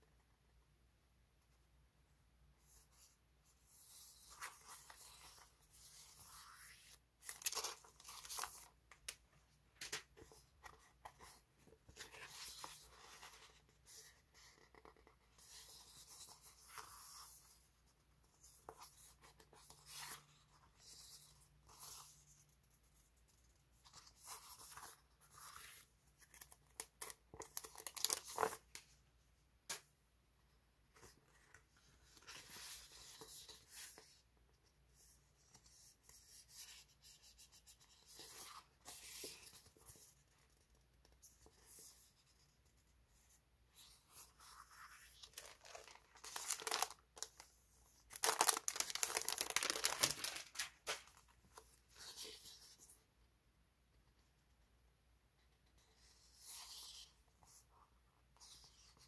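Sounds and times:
paper stickers rustling: 0:44.5 - 0:47.5, 0:48.1 - 0:51.3.

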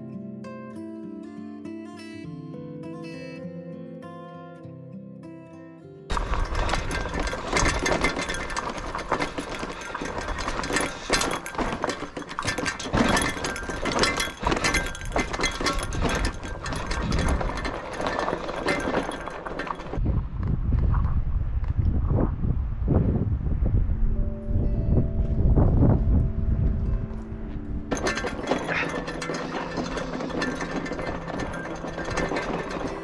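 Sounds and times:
bike rattling over rough ground: 0:06.1 - 0:21.2, 0:26.8 - 0:33.0
low rumble: 0:20.0 - 0:28.0.

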